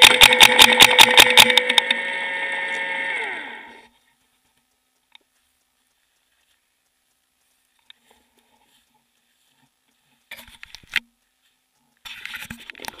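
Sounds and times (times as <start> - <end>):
sharp loud click: 0.0 - 2.0.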